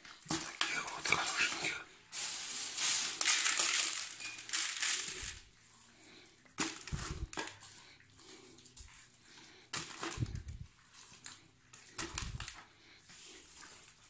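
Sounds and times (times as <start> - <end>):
wet fish sliding in a bucket: 1.2 - 9.2.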